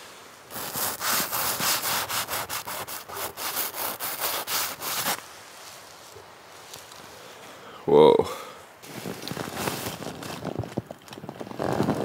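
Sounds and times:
fingertip scraping frost on nylon: 0.0s - 5.2s, 8.8s - 10.8s, 11.4s - 12.0s.

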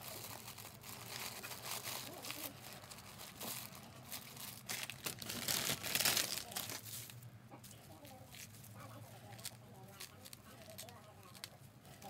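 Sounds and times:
plastic crinkling and rustling: 0.0s - 12.0s.

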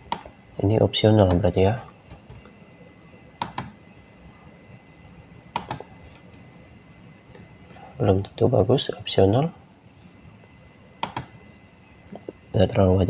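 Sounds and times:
low steady hiss: 0.0s - 13.0s
keyboard and mouse clicks: 0.1s - 0.3s, 3.4s - 3.8s, 5.5s - 6.4s, 11.0s - 11.3s.

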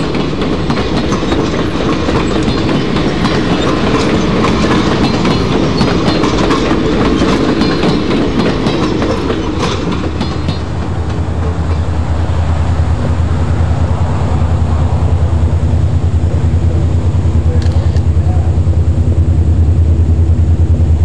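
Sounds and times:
wheels clicking over rail joints: 0.0s - 13.6s, 15.6s - 18.5s
model train cars rolling: 0.0s - 19.8s.

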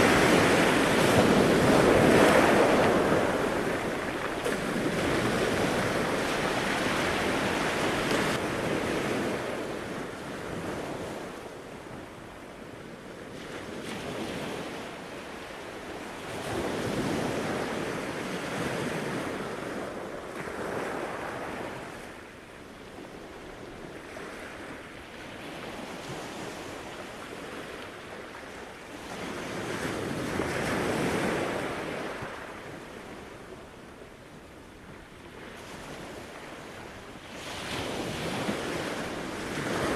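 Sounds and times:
surf washing onto beach: 0.0s - 11.5s, 35.0s - 39.9s.

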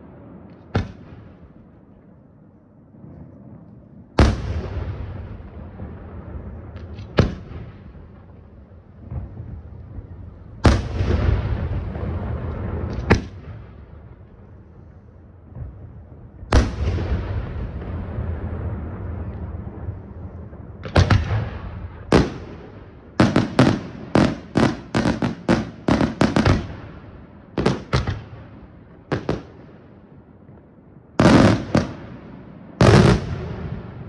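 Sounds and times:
sharp firework cracks: 0.0s - 1.4s, 6.7s - 8.2s, 20.8s - 26.9s, 31.2s - 32.2s, 32.8s - 34.0s
firework shells booming: 0.0s - 1.7s, 4.2s - 14.2s, 15.5s - 29.8s, 31.2s - 34.0s.

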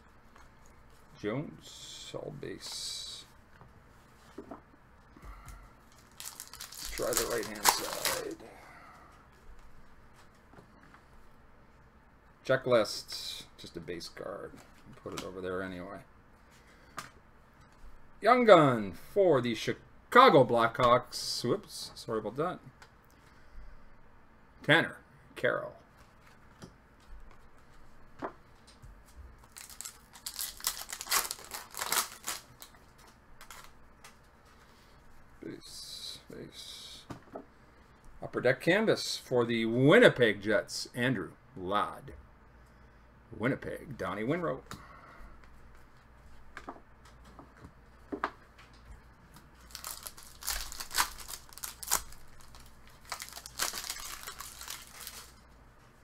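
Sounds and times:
rustling and scraping of card wrappers: 5.8s - 8.4s, 28.6s - 34.8s, 49.4s - 56.0s.

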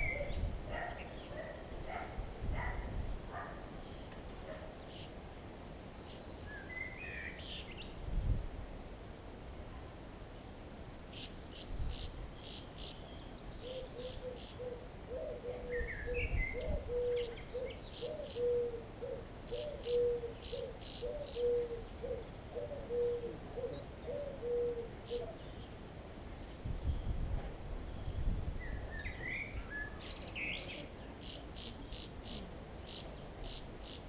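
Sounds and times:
bird hooting: 13.6s - 25.4s.

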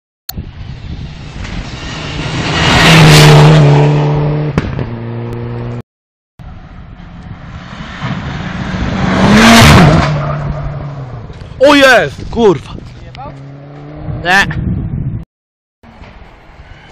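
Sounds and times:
rally car engine passing: 1.1s - 5.8s, 6.5s - 11.4s, 13.3s - 14.3s.

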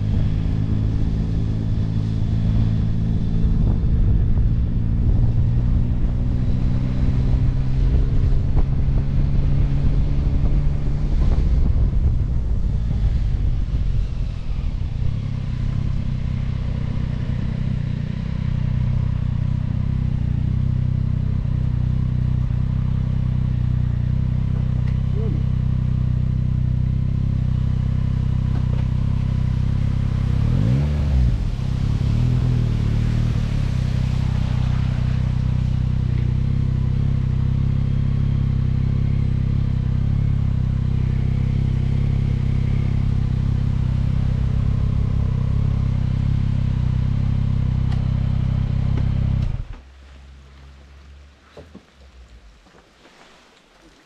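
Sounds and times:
motorcycle engine idling: 15.3s - 30.4s.

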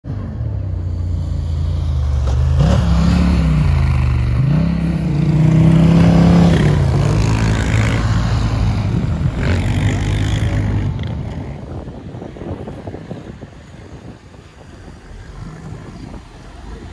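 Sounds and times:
quad bike engine revving: 2.1s - 11.8s.

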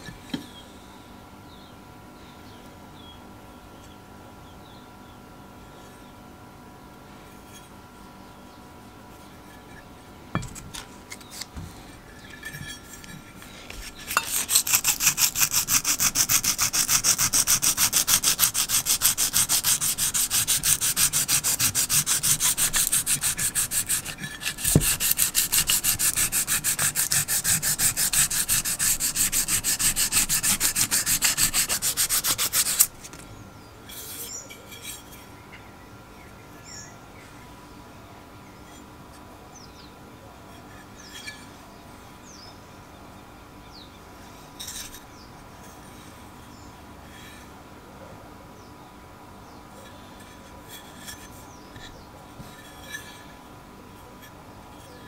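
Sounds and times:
hand sanding metal: 12.4s - 33.2s.

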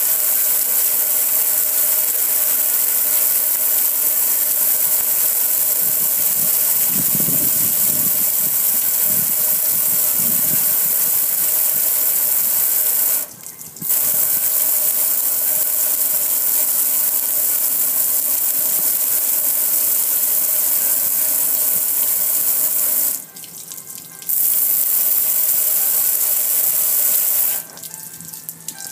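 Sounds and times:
water jet spraying metal: 0.0s - 28.9s.

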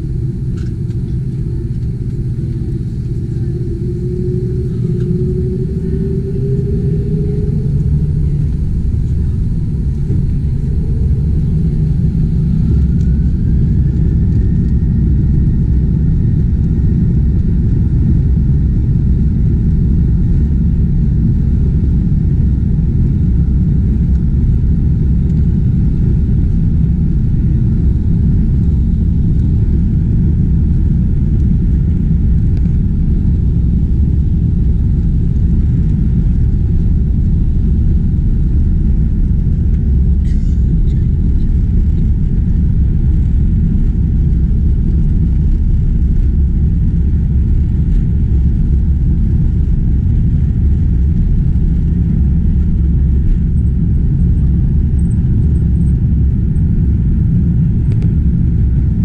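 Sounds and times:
runway rumble: 0.0s - 16.4s, 25.2s - 54.6s
engine whine rising: 0.0s - 20.4s
jet engines at takeoff: 0.0s - 59.0s.

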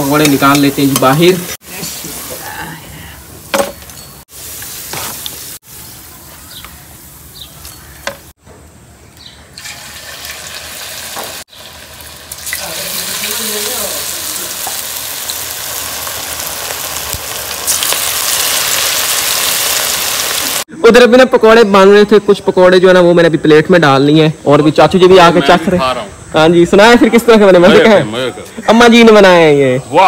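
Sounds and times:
oil sizzling while deep-frying: 0.0s - 2.5s, 4.2s - 8.4s, 9.6s - 20.7s.

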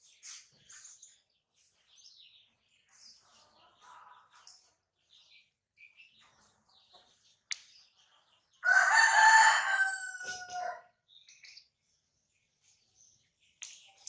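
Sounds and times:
rooster crowing: 8.6s - 10.9s.

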